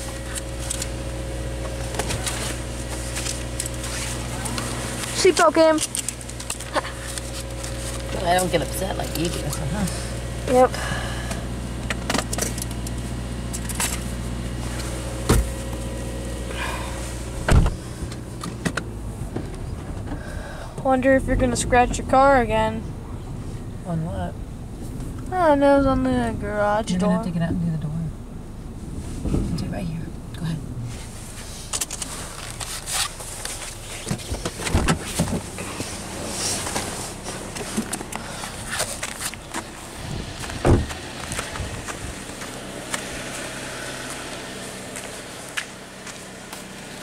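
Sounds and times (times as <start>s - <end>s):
car door clunks and thumps: 0.0s - 8.1s, 11.0s - 21.0s, 31.1s - 43.1s
car engine idling: 0.0s - 47.0s.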